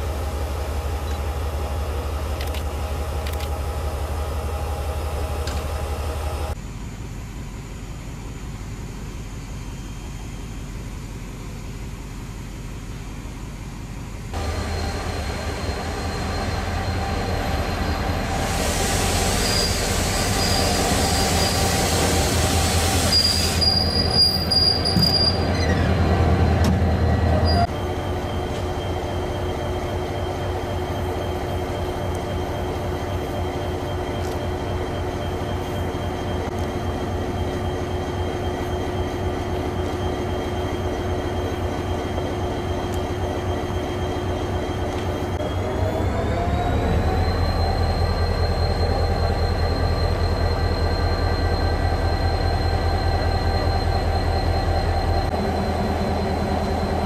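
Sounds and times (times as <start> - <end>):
diesel locomotive engine drone: 0.0 - 57.0
high-pitched squeal from running gear: 14.4 - 57.0
hiss: 18.3 - 24.0.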